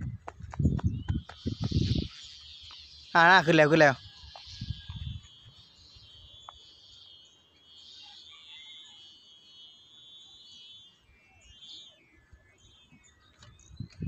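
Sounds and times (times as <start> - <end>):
insects chirring: 0.2 - 14.0
bird chirps: 0.4 - 14.0.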